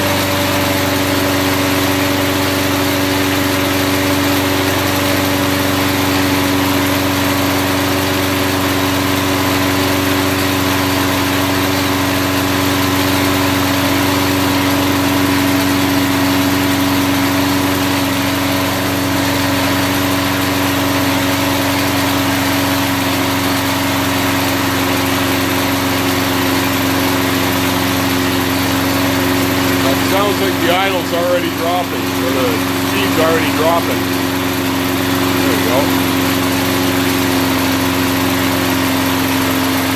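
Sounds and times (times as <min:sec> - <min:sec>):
lawn mower engine running: 0:00.0 - 0:39.9.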